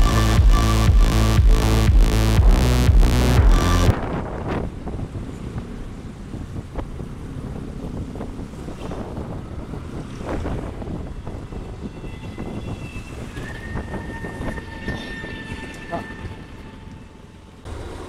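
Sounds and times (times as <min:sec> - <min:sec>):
road noise: 0:00.0 - 0:18.0
wind rushing over microphone: 0:03.4 - 0:17.0.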